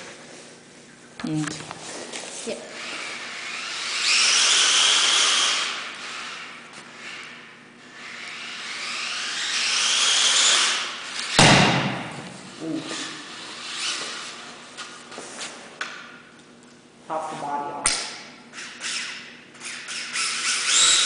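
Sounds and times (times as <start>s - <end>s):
rc car electric motor whine: 2.6s - 11.4s, 12.5s - 14.6s, 18.5s - 21.0s
sudden loud knock: 11.4s - 12.2s.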